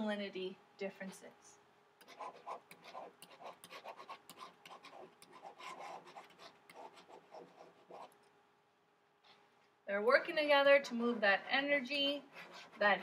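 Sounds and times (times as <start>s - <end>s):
stylus scratching on tablet: 2.0s - 8.3s, 10.6s - 13.0s.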